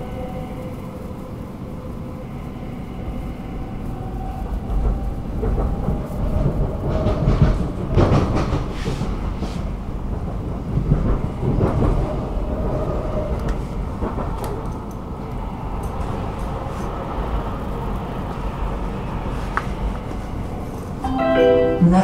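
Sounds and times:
metro train rumble: 0.0s - 22.0s
train clattering: 4.4s - 22.0s.

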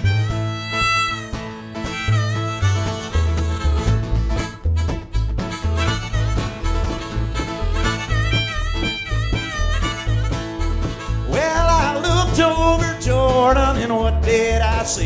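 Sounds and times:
harmonica lead: 0.0s - 13.4s
bluegrass band playing: 0.0s - 15.0s
person singing: 11.2s - 15.0s.

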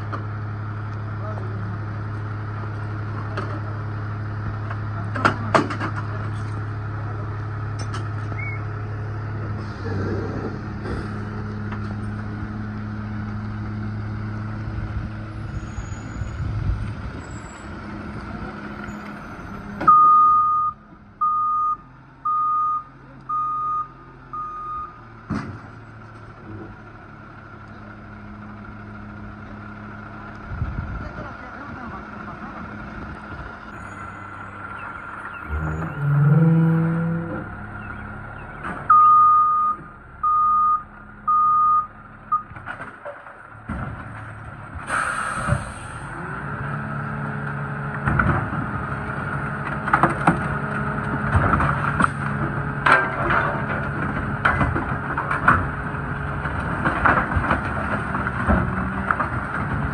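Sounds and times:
garbage truck engine running: 0.0s - 59.9s
reversing alarm beeps: 19.9s - 25.0s, 38.9s - 42.5s.

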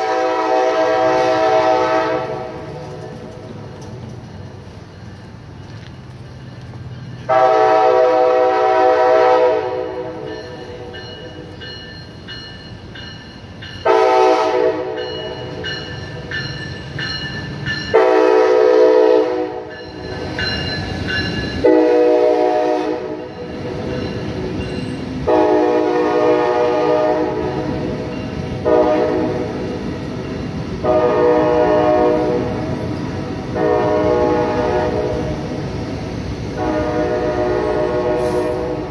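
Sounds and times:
train horn blasts: 0.0s - 2.7s, 7.3s - 10.8s, 13.8s - 15.6s, 17.9s - 19.7s, 21.6s - 23.4s, 25.2s - 27.9s, 28.6s - 29.7s, 30.8s - 32.7s, 33.5s - 35.4s, 36.5s - 38.9s
train rumbling past: 0.0s - 38.9s.

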